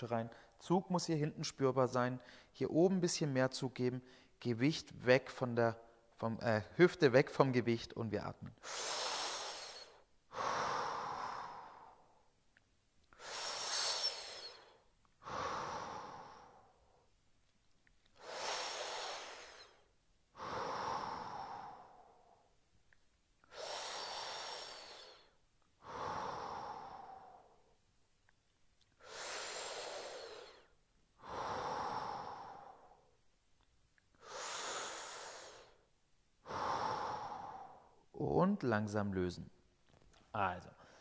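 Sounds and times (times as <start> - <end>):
man breathing deeply: 8.5 - 12.3, 13.1 - 17.1, 18.2 - 22.6, 23.4 - 27.8, 29.0 - 33.2, 34.2 - 38.1.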